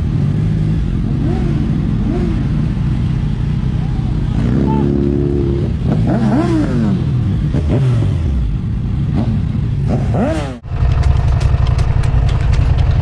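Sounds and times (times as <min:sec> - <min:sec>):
motorcycle engines revving past: 0:00.0 - 0:13.0
motorcycle engine idling: 0:10.6 - 0:13.0.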